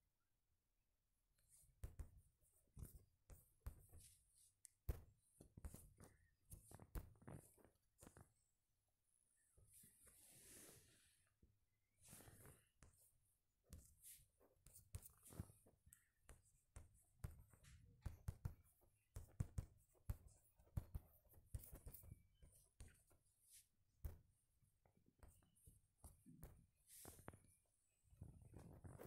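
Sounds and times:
writing taps on touchscreen: 0:01.8 - 0:08.3, 0:13.7 - 0:27.5.

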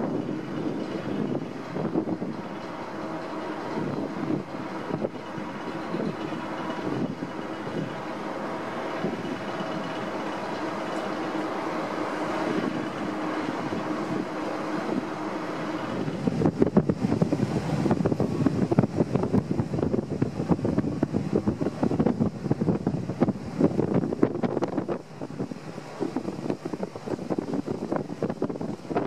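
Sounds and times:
ferry machinery droning: 0:00.0 - 0:29.0
wind buffeting microphone: 0:00.0 - 0:29.0.

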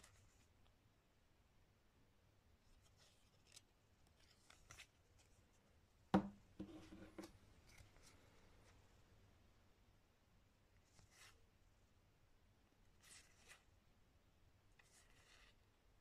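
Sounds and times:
object knocking on table: 0:06.1 - 0:07.3.

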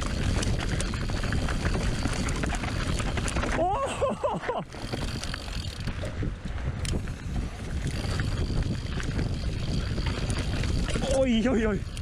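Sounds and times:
tyres rolling over dirt: 0:00.0 - 0:06.2
wind buffeting microphone: 0:00.0 - 0:12.0.

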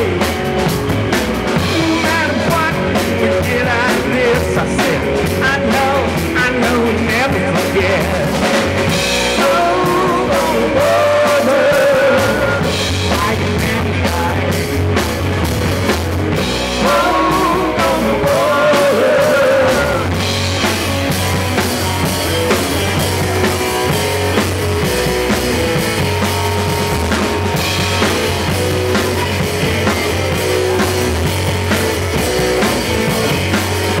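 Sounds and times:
guitar lead with bent notes: 0:00.0 - 0:34.0
live rock band playing: 0:00.0 - 0:34.0.

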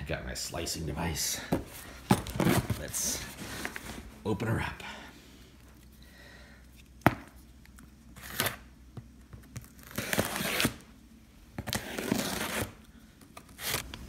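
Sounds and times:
tape tearing: 0:08.2 - 0:08.6, 0:09.5 - 0:10.9, 0:11.6 - 0:12.8, 0:13.4 - 0:13.9
scissors cutting packing tape: 0:09.6 - 0:10.8, 0:11.6 - 0:12.8, 0:13.4 - 0:13.9.

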